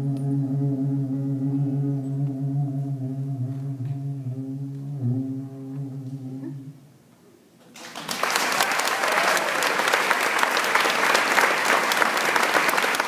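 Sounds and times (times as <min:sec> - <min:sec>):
audience applauding: 0:07.7 - 0:13.0.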